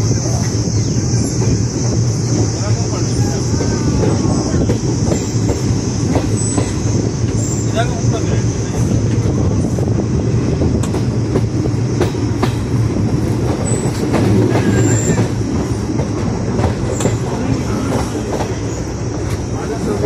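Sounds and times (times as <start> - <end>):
train wheels rumbling on rail: 0.0 - 20.0
high wheel squeals: 0.2 - 8.0, 13.6 - 15.8
wheels clicking over rail joints: 10.7 - 20.0.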